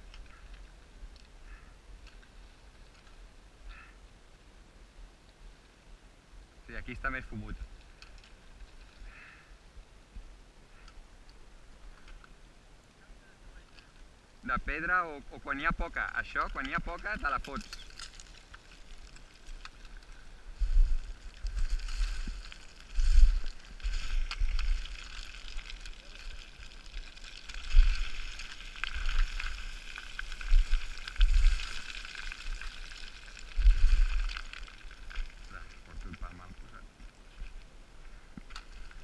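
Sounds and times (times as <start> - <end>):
wind rumbling on microphone: 6.0 - 39.0
boots crunching on scree: 16.2 - 37.6.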